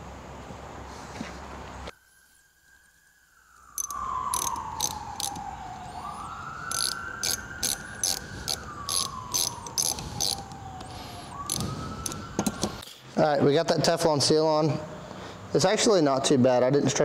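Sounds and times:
wailing siren-like tone: 1.9s - 12.8s
screwdriver metallic clicks: 3.8s - 5.4s, 6.7s - 10.5s.

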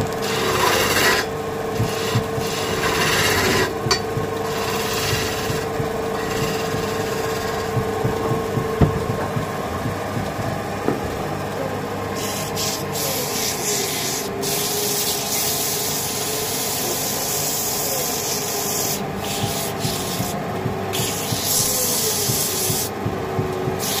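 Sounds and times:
wood lathe hum: 0.0s - 24.0s
sandpaper sanding hiss: 12.2s - 20.4s, 21.0s - 22.9s, 23.8s - 24.0s.

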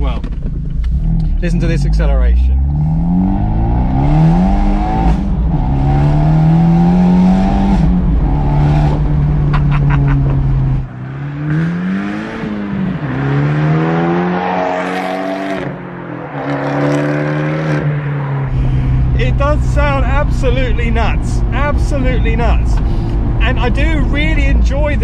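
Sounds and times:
car engine accelerating: 0.0s - 25.0s.

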